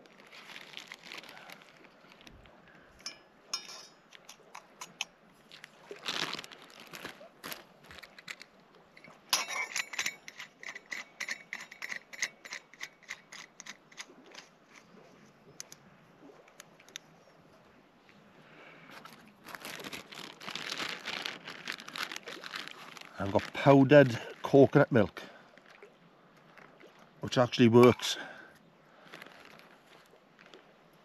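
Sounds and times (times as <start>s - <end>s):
rustling and crinkling: 0.0s - 17.1s, 18.8s - 27.0s, 29.0s - 30.8s
utensils clicking and clinking: 8.0s - 14.5s.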